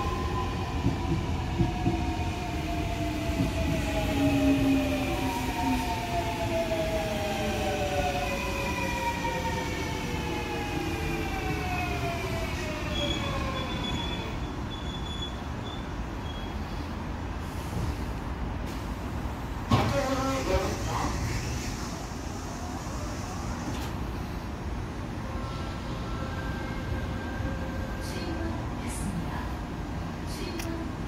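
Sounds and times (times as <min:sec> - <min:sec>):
train wheels rumbling: 0:00.0 - 0:14.2.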